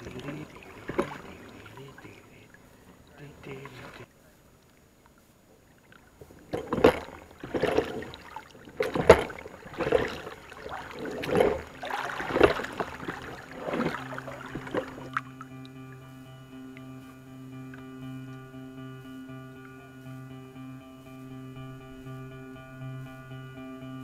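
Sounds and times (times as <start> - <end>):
oars splashing through water: 0.0 - 18.5.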